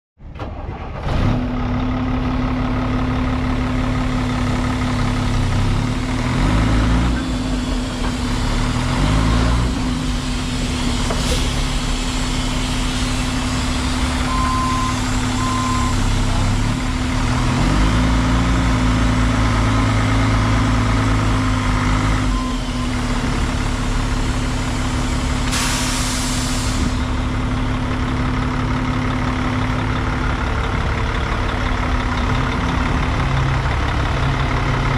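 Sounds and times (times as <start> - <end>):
diesel truck engine idling and revving: 0.2 - 34.9
short beeps: 14.2 - 16.0, 22.3 - 22.9
air hiss: 25.4 - 27.2.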